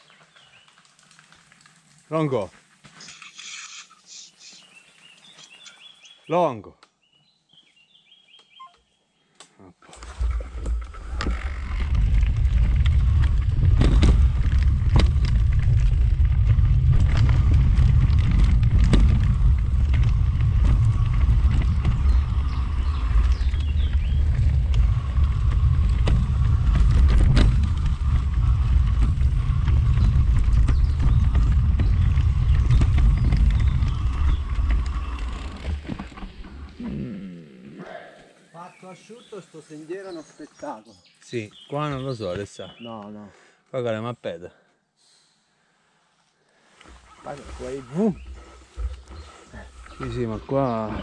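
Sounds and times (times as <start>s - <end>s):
bike tyres rumbling on trail: 0.0s - 3.0s, 10.0s - 37.1s, 46.6s - 51.0s
bike knocks and rattles: 10.4s - 36.6s.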